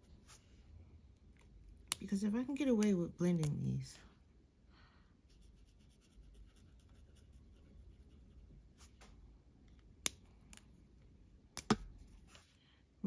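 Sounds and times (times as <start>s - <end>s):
marker scratching on paper: 5.3s - 9.0s.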